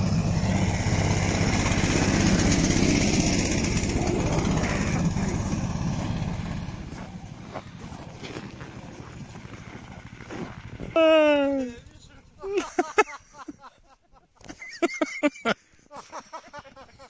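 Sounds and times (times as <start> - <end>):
small engine running: 0.0 - 12.7.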